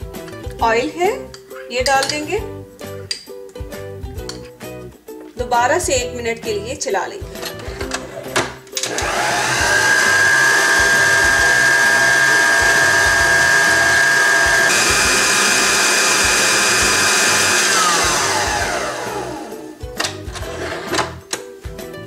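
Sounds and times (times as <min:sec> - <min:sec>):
stand mixer motor whining: 0:08.8 - 0:19.7.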